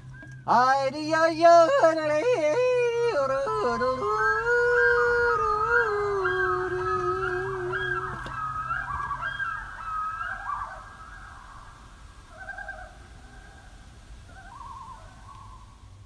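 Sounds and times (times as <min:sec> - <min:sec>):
loons calling: 0:00.0 - 0:16.0
man yodeling: 0:00.4 - 0:09.2.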